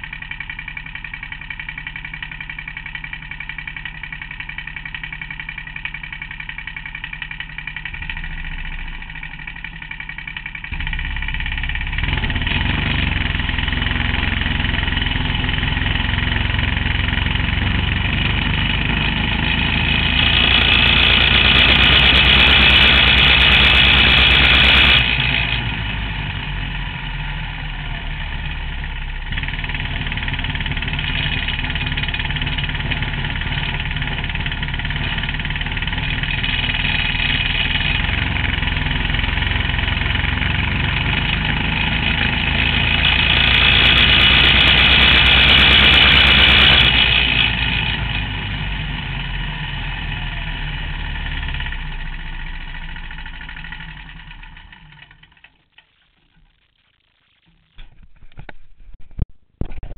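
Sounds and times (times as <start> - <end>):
vehicle engine running: 0.0 - 57.1.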